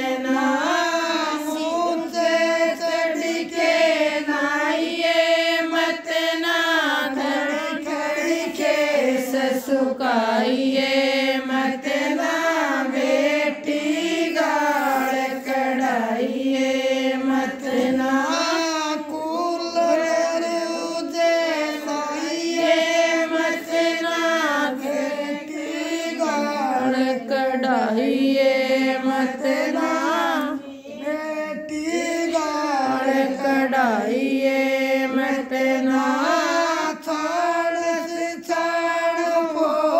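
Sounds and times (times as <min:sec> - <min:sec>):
woman singing alone: 0:26.1 - 0:31.9.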